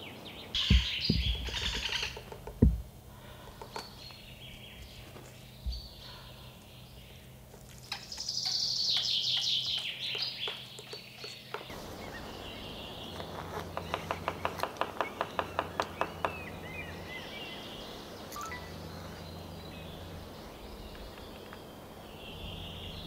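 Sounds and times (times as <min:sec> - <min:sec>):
small birds singing: 0:00.0 - 0:23.0
low thump: 0:00.6 - 0:01.4, 0:02.6 - 0:02.9
woodpecker pecking: 0:00.6 - 0:04.5, 0:13.1 - 0:17.4.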